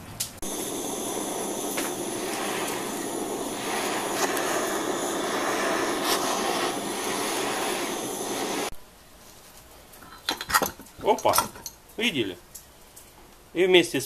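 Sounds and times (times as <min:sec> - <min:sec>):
blowtorch hissing: 0:00.4 - 0:08.8.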